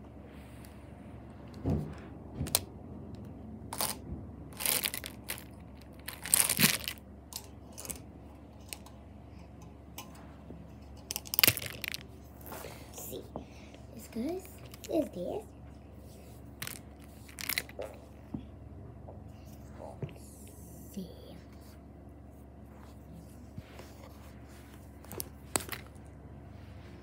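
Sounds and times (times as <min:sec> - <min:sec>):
markers and pens rustling: 0:03.7 - 0:04.0, 0:04.6 - 0:08.9, 0:11.0 - 0:12.9, 0:16.0 - 0:18.1, 0:22.7 - 0:26.0.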